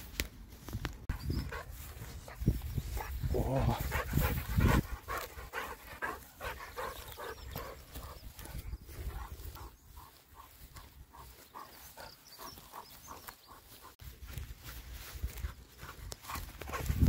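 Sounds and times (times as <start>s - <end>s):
dog making rhythmic sounds: 3.8s - 14.0s.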